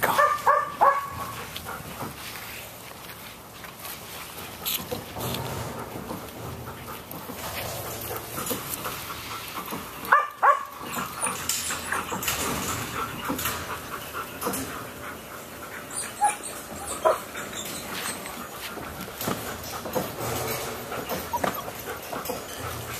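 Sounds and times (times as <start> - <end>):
puppies scuffling: 0.0 - 22.9
puppies yelping and whimpering: 13.2 - 18.9, 21.1 - 22.0.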